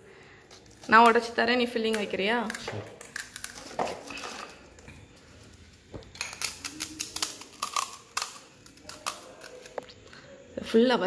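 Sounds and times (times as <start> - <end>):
crisp shells cracking: 1.8 - 10.1.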